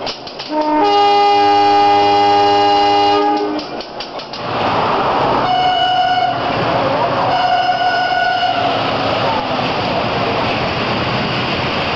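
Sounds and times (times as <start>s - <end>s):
train rushing rumble: 0.0s - 11.9s
diesel locomotive horn blast: 0.5s - 3.7s, 5.4s - 8.9s.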